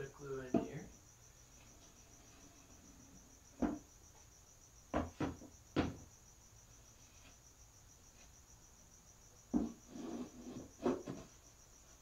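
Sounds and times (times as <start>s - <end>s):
crickets chirping: 0.0s - 12.0s
knocks on wood: 3.6s - 3.9s, 4.9s - 6.1s, 9.5s - 9.8s.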